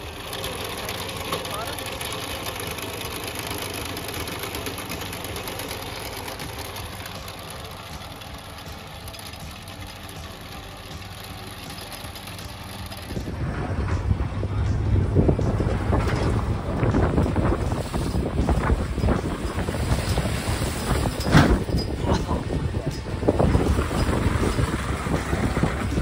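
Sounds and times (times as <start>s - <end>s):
chain trencher running: 0.0s - 26.0s
wind buffeting microphone: 13.1s - 26.0s.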